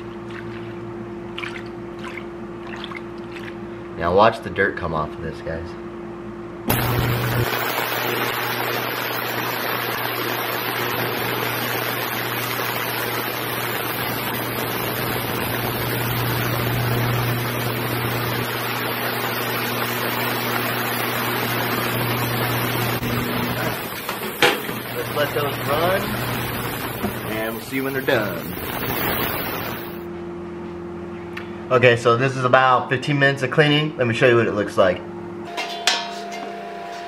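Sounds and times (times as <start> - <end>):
parts cleaner buzzing hum: 6.6 - 30.1, 35.5 - 37.0
even hiss: 22.6 - 30.1.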